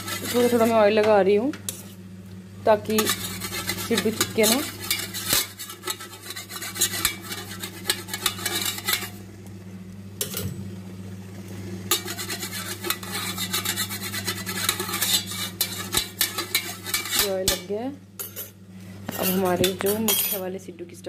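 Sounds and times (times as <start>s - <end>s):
metal spoon scraping metal tray: 0.0s - 0.8s, 2.8s - 9.2s, 11.9s - 20.5s
steady low hum: 0.0s - 21.0s
spoon clinking on tray: 19.2s - 20.4s.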